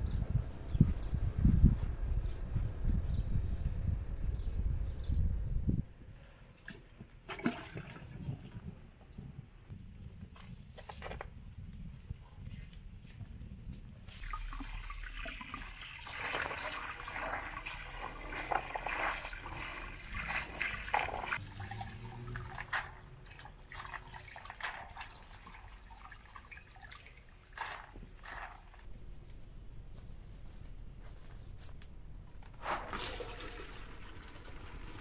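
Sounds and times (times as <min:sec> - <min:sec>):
water splashing and dribbling: 0:06.6 - 0:08.8, 0:14.1 - 0:28.9, 0:32.6 - 0:35.0.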